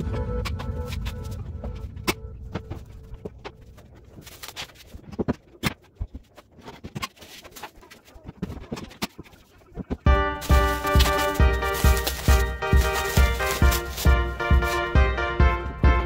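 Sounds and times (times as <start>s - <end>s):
background music: 0.0s - 3.8s, 10.0s - 16.0s.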